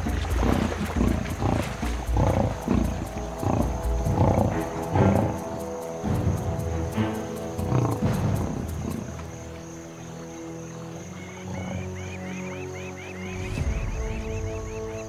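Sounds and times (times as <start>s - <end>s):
lionesses growling: 0.0s - 9.6s
background music with held tones: 0.0s - 15.0s.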